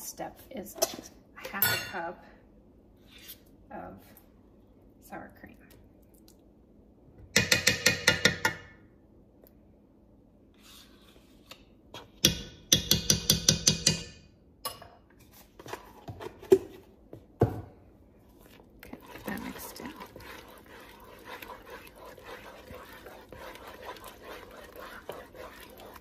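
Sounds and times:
metal spoon tapping metal pot: 7.4s - 8.8s, 12.2s - 14.9s.

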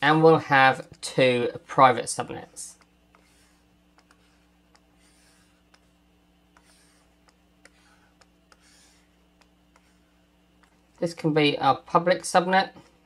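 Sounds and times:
low electrical hum: 0.0s - 13.0s
stylus scratching on tablet: 0.1s - 13.0s
stylus tapping on tablet: 2.7s - 10.9s.

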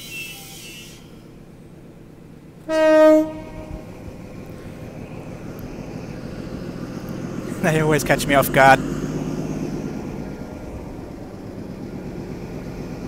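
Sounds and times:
low train rumble: 0.0s - 13.0s
train horn blast: 2.7s - 4.1s.

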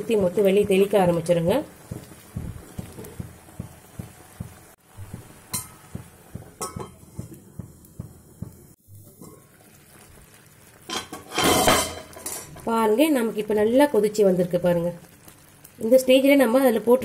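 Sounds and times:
thick jam boiling and plopping: 0.0s - 17.0s
metal lid clinking on pan: 10.9s - 12.6s.

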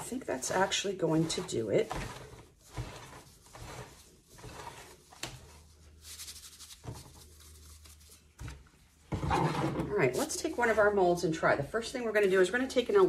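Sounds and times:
powder rustling and crunching: 0.0s - 8.7s, 9.9s - 11.4s.

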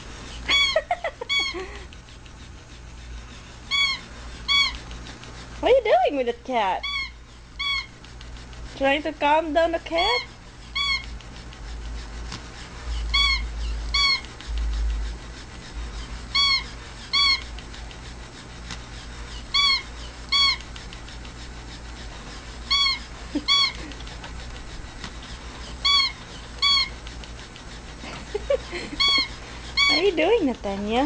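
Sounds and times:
toy cat mewing: 0.5s - 1.6s, 3.7s - 4.8s, 6.8s - 7.9s, 10.1s - 11.1s, 13.1s - 14.3s, 16.3s - 17.5s, 19.4s - 20.7s, 22.7s - 23.9s, 25.8s - 27.0s, 28.9s - 30.2s.

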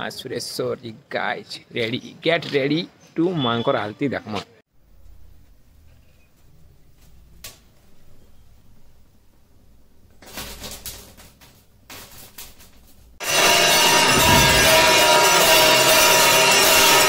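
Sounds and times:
bells and gongs ringing: 13.2s - 17.0s.

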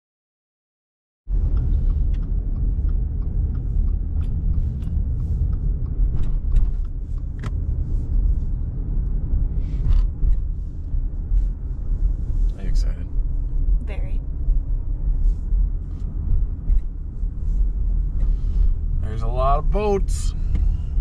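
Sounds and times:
tyre and road noise: 1.3s - 21.0s
small clicks and ticks: 1.4s - 7.6s.

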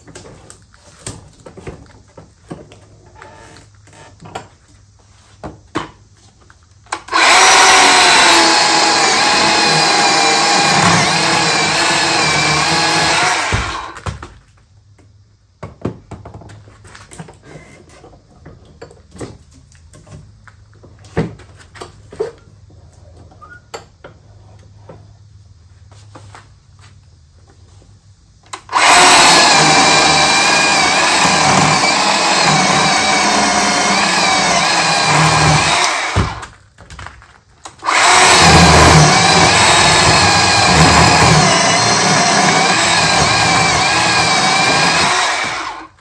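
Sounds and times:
electric chainsaw cutting log: 6.9s - 14.0s, 28.5s - 36.5s, 37.7s - 46.0s.

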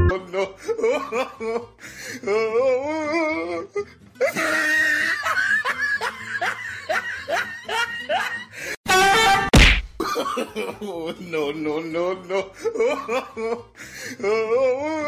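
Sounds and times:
person laughing: 4.2s - 8.6s.

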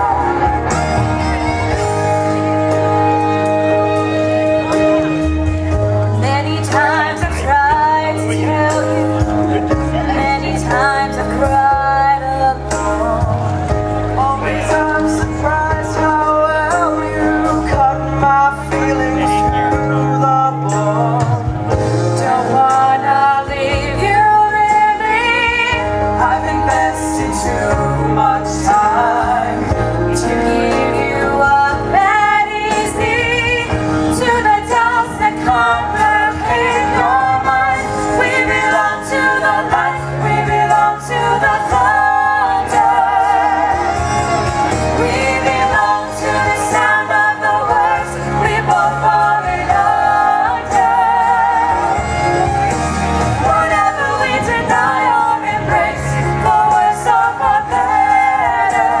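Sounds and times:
man and woman singing: 6.2s - 44.3s, 44.9s - 52.7s, 53.3s - 59.0s.

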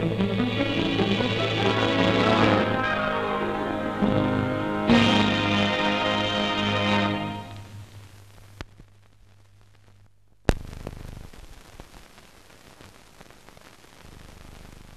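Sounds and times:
music: 0.0s - 8.0s
film soundtrack hiss: 0.0s - 14.9s
clicks and crackle: 7.5s - 14.9s.

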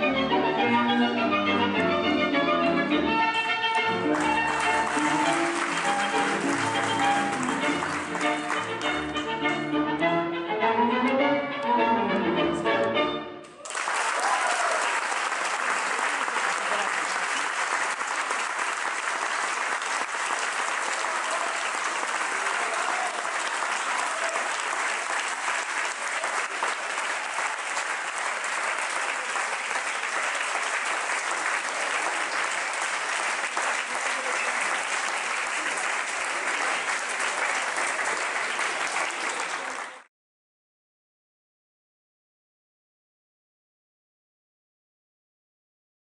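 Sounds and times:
tango music: 0.0s - 13.6s, 26.6s - 39.9s
audience applauding: 3.7s - 9.3s, 13.5s - 40.1s
cheering shouts: 13.5s - 17.4s, 20.4s - 27.8s.

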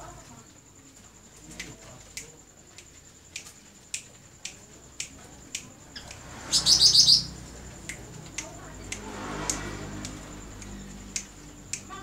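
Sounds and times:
songbird trill: 5.0s - 12.0s.

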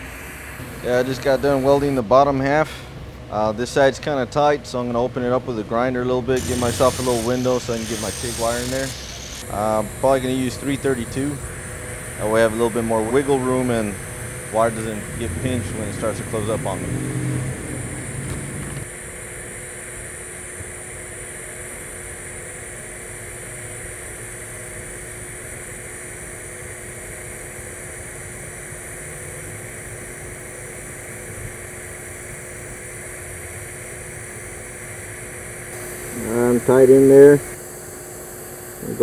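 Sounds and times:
welding arc hissing: 0.0s - 2.0s, 6.4s - 18.9s, 35.7s - 37.6s
constant hum: 0.0s - 39.0s.

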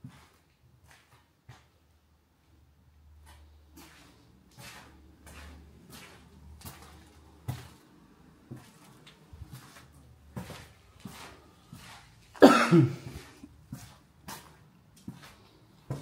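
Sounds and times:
footsteps crunching over debris: 3.2s - 12.6s.

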